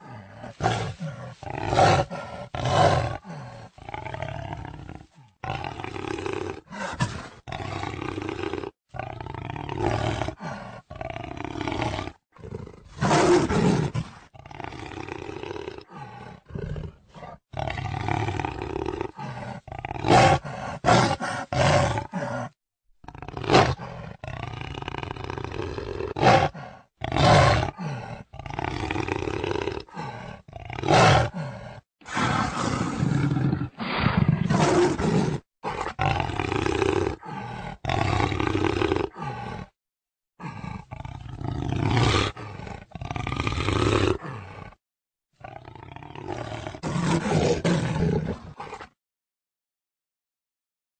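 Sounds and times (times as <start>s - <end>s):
jaguar roars and grunts: 0.0s - 39.8s, 40.4s - 44.8s, 45.4s - 49.0s.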